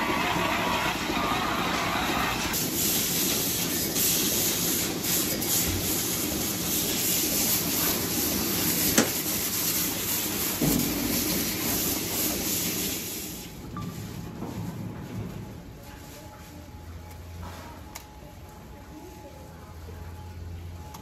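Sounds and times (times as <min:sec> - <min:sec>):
water hose spray hissing: 0:00.0 - 0:13.6
milking machinery running: 0:00.0 - 0:21.0.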